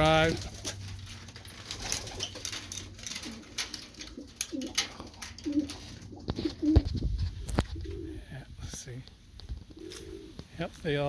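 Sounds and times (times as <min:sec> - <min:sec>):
pigeons cooing: 0:01.7 - 0:08.3, 0:09.6 - 0:10.5.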